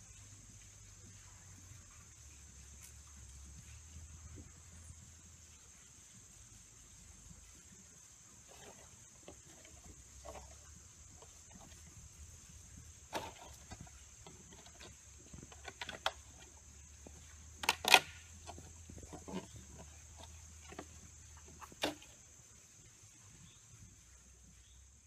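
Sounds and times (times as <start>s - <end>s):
plastic decoy clacking: 17.6s - 18.3s.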